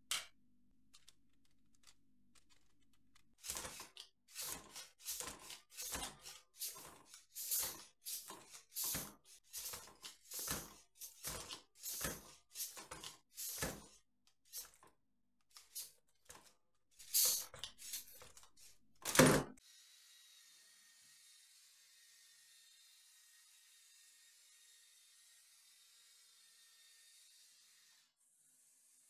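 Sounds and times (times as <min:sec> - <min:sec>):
plastic parts rattling: 0:00.9 - 0:14.9, 0:15.6 - 0:19.5.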